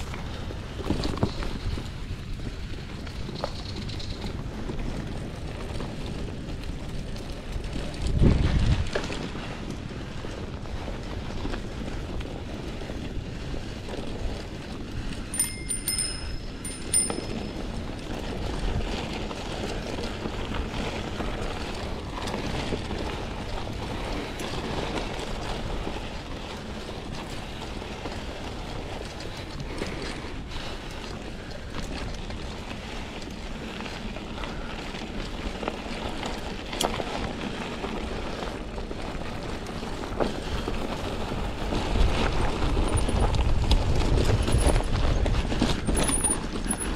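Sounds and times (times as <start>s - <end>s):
bicycle clicks and rattles: 0.0s - 46.9s
bicycle tyre and wind noise: 0.0s - 46.9s
short high ring: 15.4s - 17.8s.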